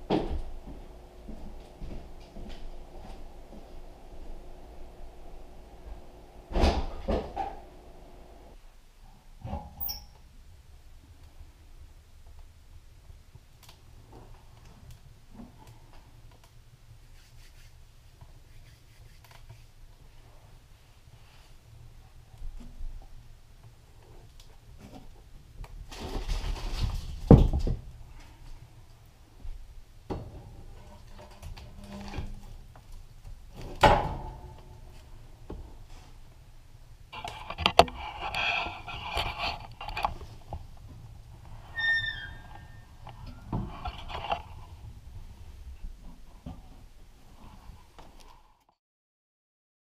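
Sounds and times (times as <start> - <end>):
low steady rumble: 0.0 - 9.4
rustling: 17.0 - 29.6, 37.1 - 48.6.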